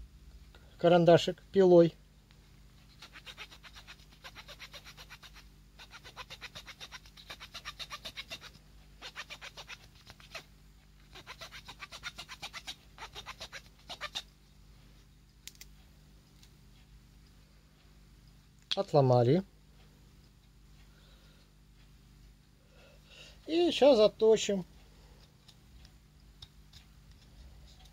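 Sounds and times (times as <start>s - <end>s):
saw rasping on pencil: 3.0s - 10.4s, 11.1s - 14.2s.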